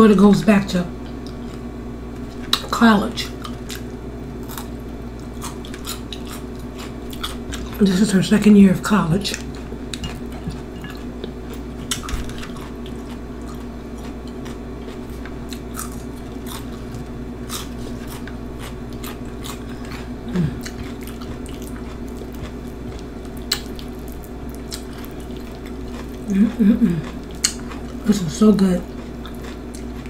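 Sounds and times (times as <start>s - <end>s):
steady low hum: 0.0s - 30.0s
person chewing crunchy food: 1.0s - 7.8s, 9.3s - 30.0s
wet mouth clicks: 27.4s - 27.6s.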